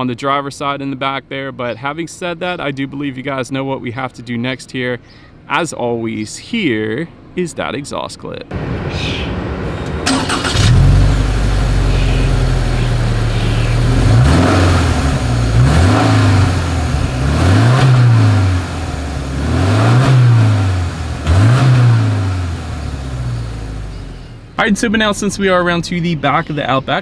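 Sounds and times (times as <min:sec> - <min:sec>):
car engine idling and revving: 0:09.6 - 0:24.6.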